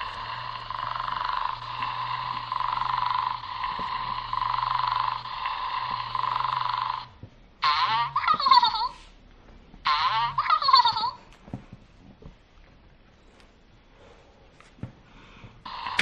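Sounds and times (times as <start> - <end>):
electronic buzzing toy tone: 0.0 - 9.0, 9.9 - 11.2, 15.7 - 16.0.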